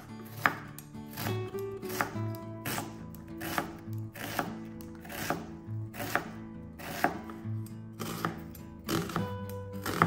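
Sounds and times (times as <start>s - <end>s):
knife striking cutting board: 0.0s - 1.3s, 1.9s - 7.4s
background music: 0.0s - 10.0s.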